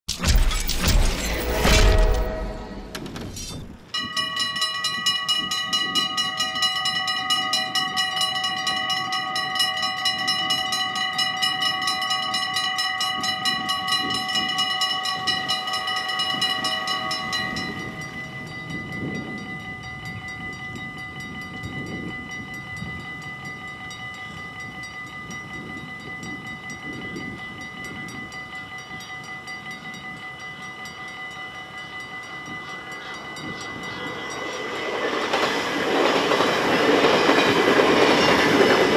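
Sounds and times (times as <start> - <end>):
approaching train rushing: 0.7 - 3.9, 31.9 - 38.9
level crossing warning bells: 3.4 - 38.9.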